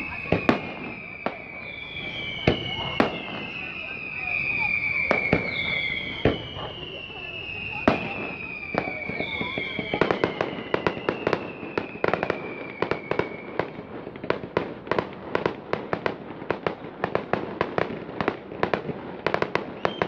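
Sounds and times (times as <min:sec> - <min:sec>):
high whistle sliding down: 0:00.0 - 0:13.7
fireworks bangs and crackles: 0:00.0 - 0:20.0.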